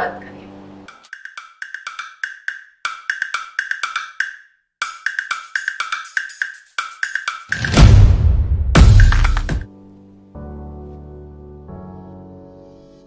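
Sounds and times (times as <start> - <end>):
wood-block-like percussive clicks: 0.9 - 7.8, 8.8 - 9.7.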